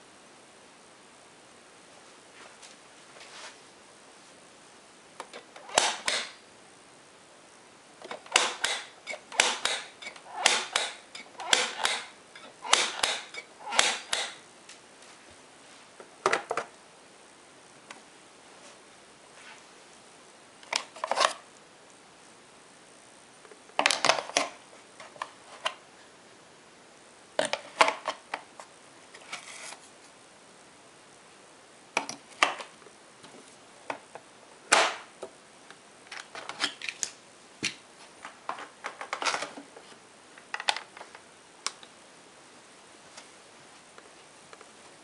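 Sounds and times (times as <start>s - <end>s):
plastic clicks and clatters: 23.8s - 25.8s, 36.1s - 39.7s, 40.4s - 41.9s.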